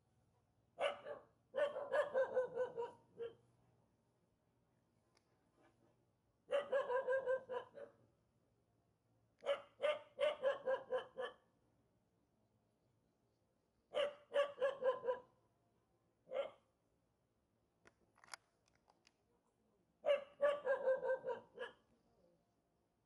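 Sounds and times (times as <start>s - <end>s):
dog barking: 0.8s - 3.4s, 6.5s - 8.0s, 9.4s - 11.5s, 13.9s - 15.3s, 16.3s - 16.7s, 20.0s - 21.9s.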